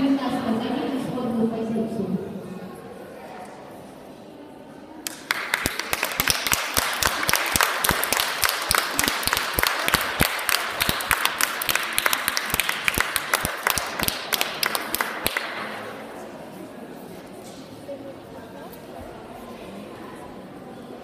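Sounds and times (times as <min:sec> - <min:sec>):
audience applauding: 0:05.0 - 0:15.5
loud claps close to microphone: 0:05.0 - 0:15.8.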